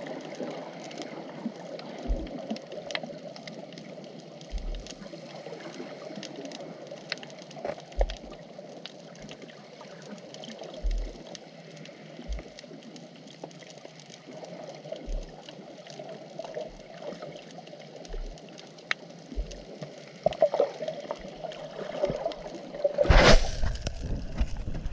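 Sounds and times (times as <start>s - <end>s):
dull low thump: 2.1s - 2.3s, 4.5s - 4.9s, 10.8s - 11.2s, 15.1s - 15.3s, 18.1s - 18.4s, 19.4s - 19.6s, 23.0s - 24.9s.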